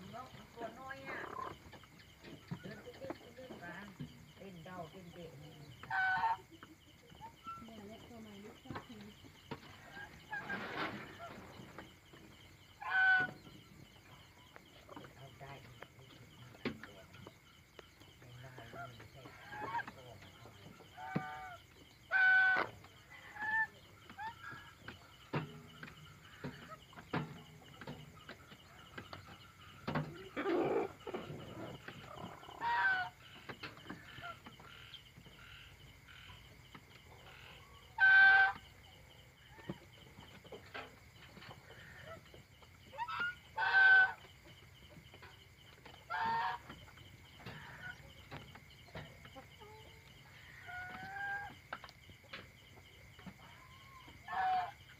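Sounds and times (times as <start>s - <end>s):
chickens calling: 0.0s - 54.9s.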